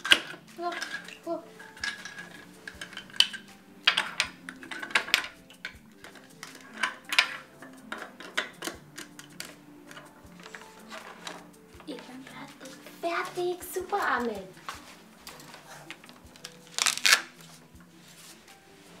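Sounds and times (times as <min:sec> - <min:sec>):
plastic toy bricks clicking: 0:00.0 - 0:11.4.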